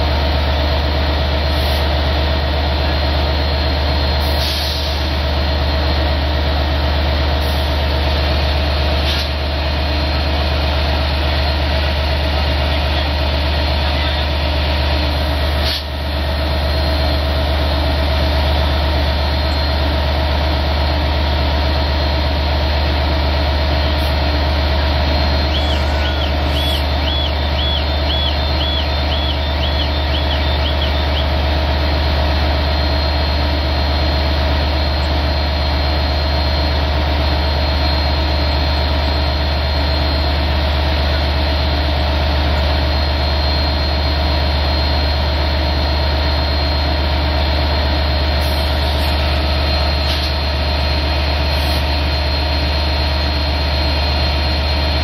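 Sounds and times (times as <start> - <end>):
diesel locomotive idling: 0.0 - 55.0
short high chirps: 25.2 - 31.2.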